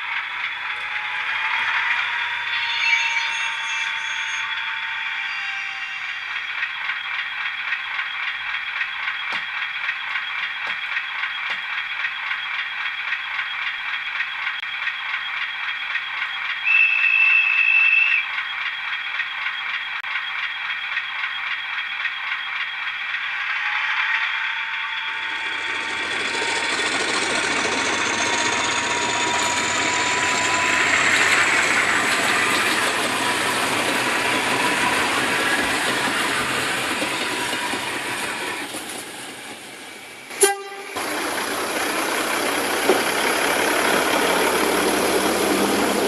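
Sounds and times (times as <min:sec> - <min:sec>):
model train whirring and rattling: 0:00.0 - 0:46.0
high whistle-like note: 0:00.7 - 0:06.3, 0:16.6 - 0:18.3.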